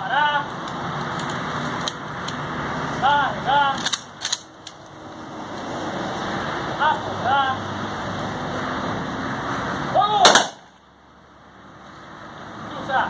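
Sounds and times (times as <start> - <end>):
steady engine noise: 0.0 - 13.0
sharp cracks: 10.2 - 10.8.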